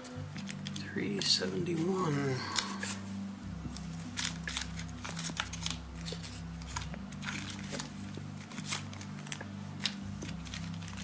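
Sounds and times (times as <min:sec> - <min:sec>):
plastic bags crinkling: 0:03.7 - 0:11.0.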